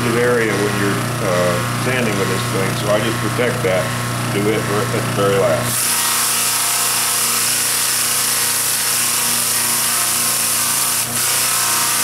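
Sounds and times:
motor hum: 0.0s - 12.0s.

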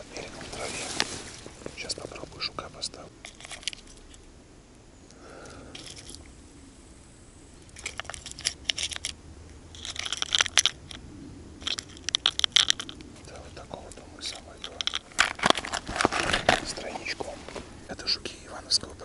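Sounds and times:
fishing tackle crinkling: 0.0s - 4.3s, 5.3s - 6.3s, 7.6s - 11.0s, 11.6s - 19.0s.

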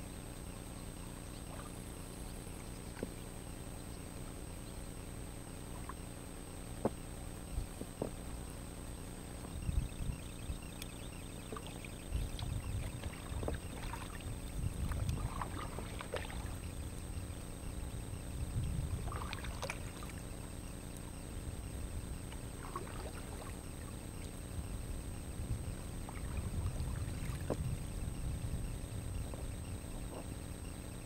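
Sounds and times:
steady low rumble: 0.0s - 31.0s
water splashing off paddle: 11.6s - 16.6s.

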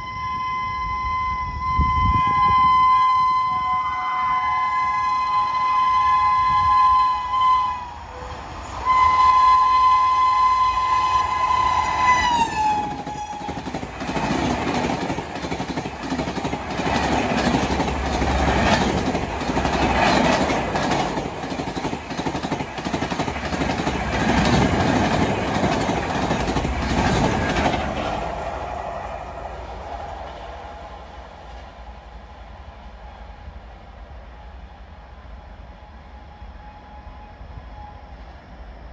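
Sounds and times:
locomotive horn blasts: 0.0s - 13.6s
train coaches rumbling past: 0.0s - 38.9s.

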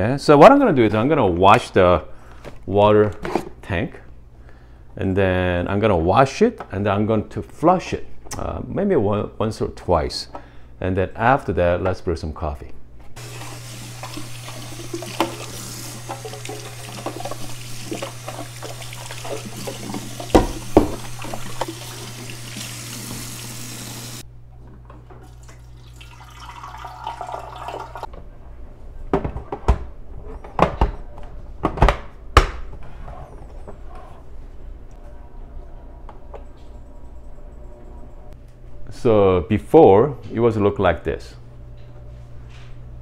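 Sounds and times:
faucet running into sink: 13.2s - 24.2s, 25.2s - 28.1s.

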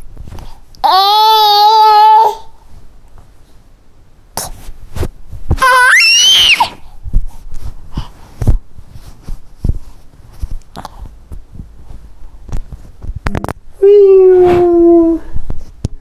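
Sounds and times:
child squealing: 5.6s - 6.8s.

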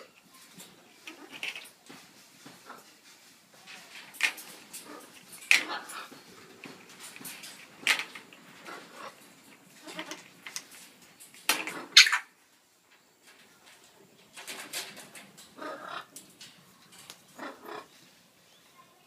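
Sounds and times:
parrots calling harshly: 4.8s - 6.2s, 11.6s - 12.4s, 15.6s - 16.2s, 17.3s - 17.9s.

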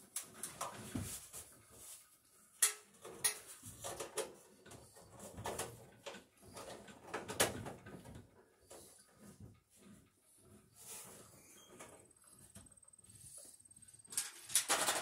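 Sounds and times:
sheet metal clicking and rattling: 14.1s - 15.0s.

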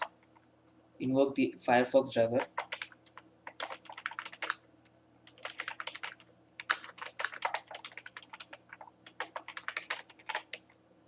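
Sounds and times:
typing on computer keyboard: 2.4s - 4.6s, 5.3s - 10.6s.

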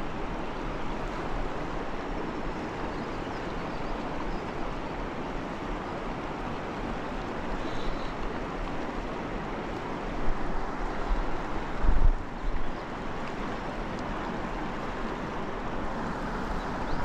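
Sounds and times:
river rushing over rocks: 0.0s - 17.0s
wind on microphone: 11.2s - 12.7s.

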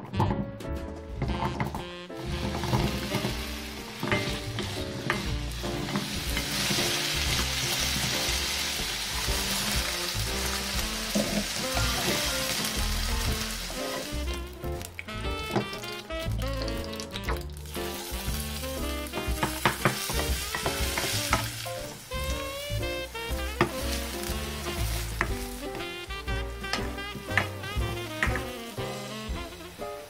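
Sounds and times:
vegetables sizzling in hot oil: 2.2s - 30.0s
carrot pieces knocking into pan: 19.1s - 21.5s, 26.6s - 28.6s.

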